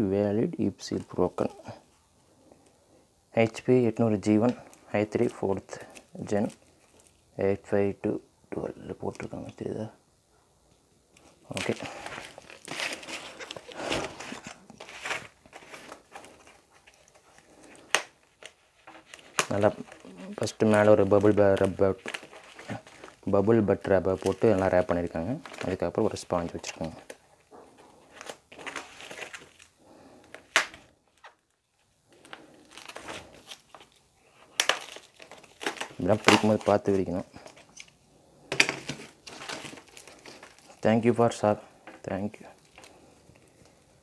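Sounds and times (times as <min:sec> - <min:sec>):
plastic packaging crinkling: 0:04.3 - 0:07.2, 0:11.2 - 0:38.0, 0:38.6 - 0:41.2, 0:42.2 - 0:43.9
foam sheet cracking: 0:32.6 - 0:37.0.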